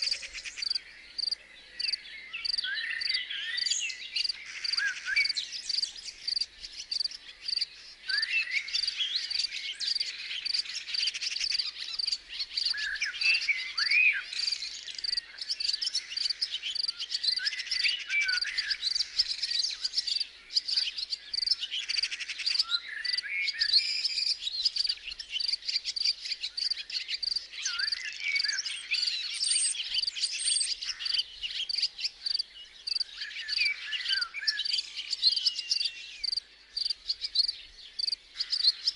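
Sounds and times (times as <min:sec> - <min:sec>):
birds chirping: 0:00.0 - 0:38.9
insects chirping: 0:00.4 - 0:07.9, 0:15.0 - 0:17.4, 0:24.8 - 0:28.0, 0:30.9 - 0:33.6, 0:34.7 - 0:38.9.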